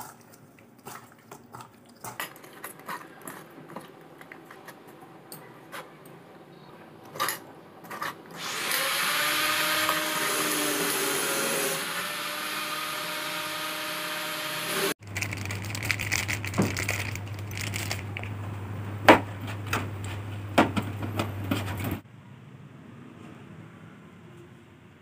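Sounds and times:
machine whirring: 8.3s - 18.2s.

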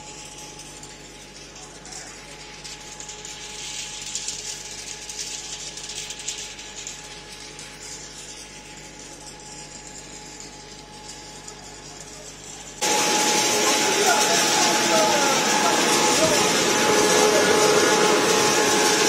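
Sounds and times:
wood chipping machinery running: 11.4s - 19.0s.

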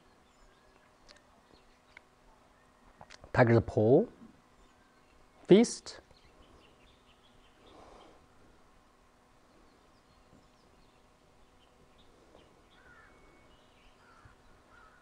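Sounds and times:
faint bird chirps: 0.0s - 3.1s, 4.5s - 8.6s, 9.4s - 15.0s
faint steady hum: 0.0s - 15.0s.

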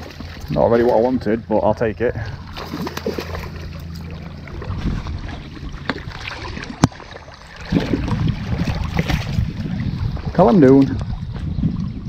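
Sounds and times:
steady low rumble: 0.0s - 12.0s
fish splashing at water surface: 2.4s - 10.8s.

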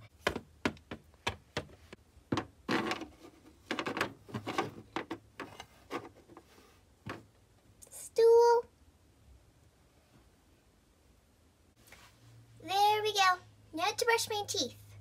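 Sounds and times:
rustling scrapes: 2.7s - 6.9s.

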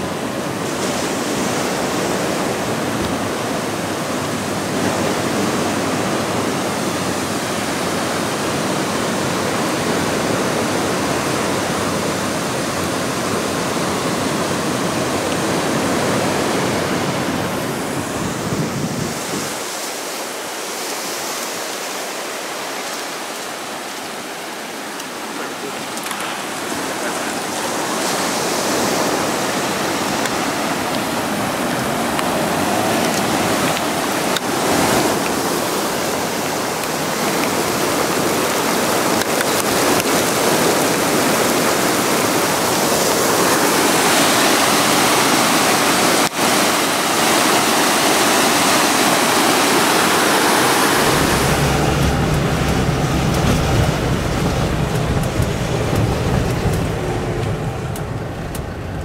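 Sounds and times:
floodwater rushing: 0.0s - 59.0s
car engine rumble inside cabin: 51.0s - 59.0s.

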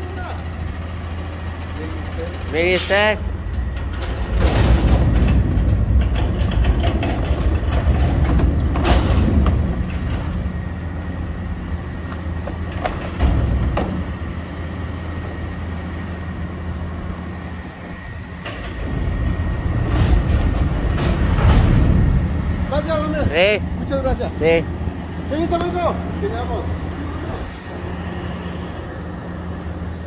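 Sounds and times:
dumpster wheels rumbling on asphalt: 0.0s - 30.0s
truck engine idling: 0.0s - 30.0s
metal bin clanks and knocks: 3.8s - 10.6s, 12.7s - 14.1s, 18.5s - 22.3s.

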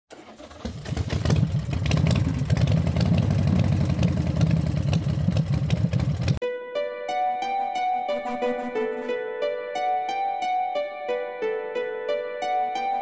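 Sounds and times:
engine running rough: 0.1s - 6.4s.

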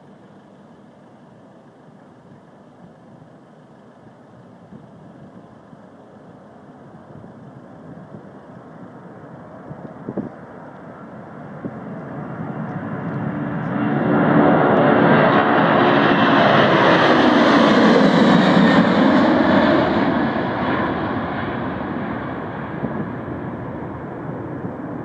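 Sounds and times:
jet engines roaring overhead: 2.2s - 25.0s.

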